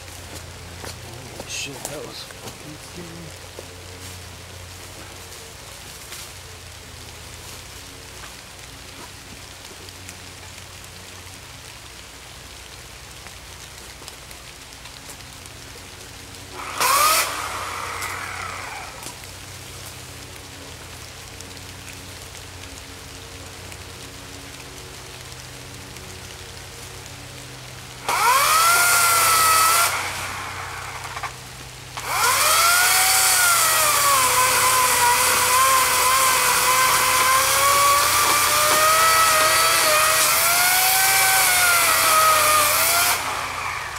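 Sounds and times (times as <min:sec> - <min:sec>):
electric chainsaw motor whine: 0:16.4 - 0:43.9.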